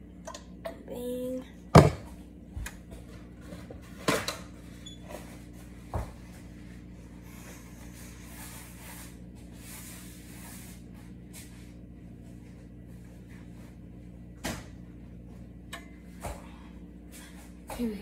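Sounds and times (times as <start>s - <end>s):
steady low hum: 0.0s - 18.0s
sharp knocks in a kitchen: 1.7s - 2.7s.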